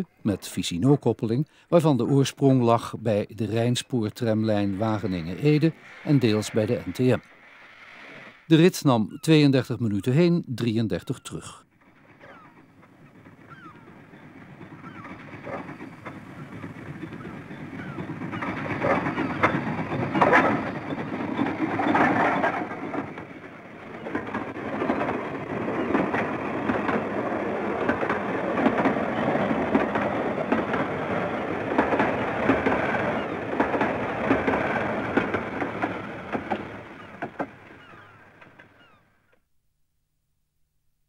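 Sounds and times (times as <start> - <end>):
steam tram passing: 0.0 - 39.0
wheels clicking and clattering: 11.8 - 38.9.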